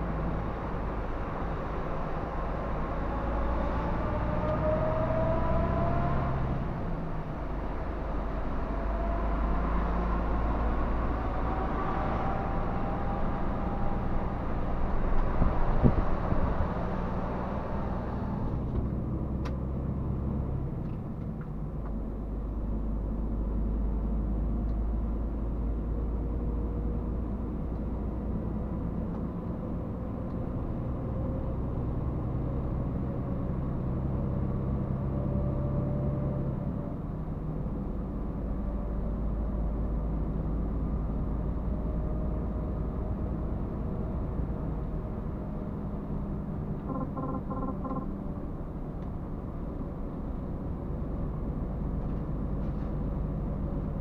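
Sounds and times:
truck engine rumble: 6.6s - 54.0s
short beeps: 46.8s - 48.1s.

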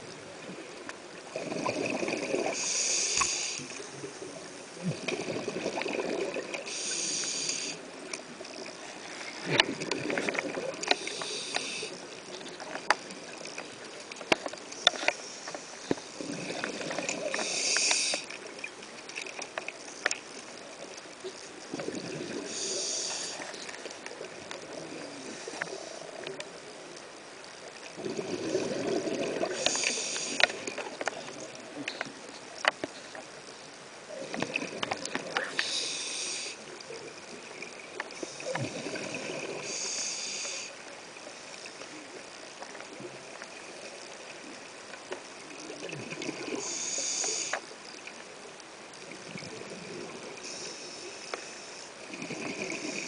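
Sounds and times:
exhale bubbling rush: 1.3s - 3.7s, 21.7s - 23.5s, 28.0s - 30.7s, 38.2s - 40.8s
scuba regulator breathing: 1.4s - 3.8s, 6.5s - 7.9s, 10.8s - 12.0s, 14.8s - 18.4s, 22.2s - 23.7s, 28.3s - 30.8s, 35.2s - 36.7s, 38.2s - 40.8s, 46.4s - 47.6s, 50.4s - 53.0s.

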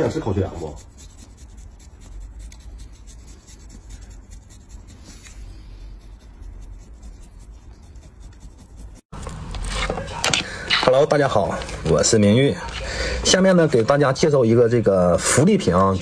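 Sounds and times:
scraper blade scratching skin: 0.0s - 9.9s
room sound: 0.0s - 16.0s.

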